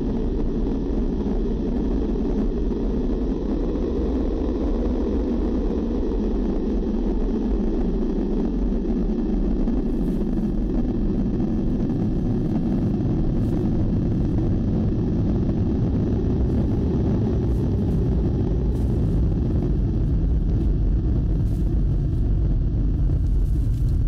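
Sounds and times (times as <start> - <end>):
low rumbling drone: 0.0 - 24.0.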